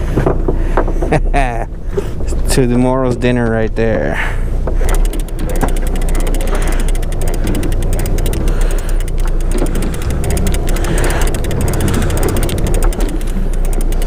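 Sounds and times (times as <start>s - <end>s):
steady low rumble: 0.0s - 14.0s
fishing reel clicking: 4.8s - 14.0s.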